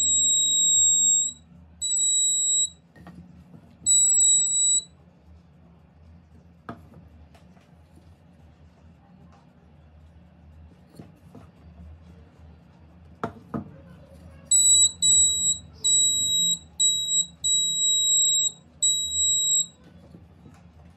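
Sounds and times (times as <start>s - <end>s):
high steady alarm beeps: 0.0s - 2.8s, 3.9s - 4.9s, 14.5s - 19.8s.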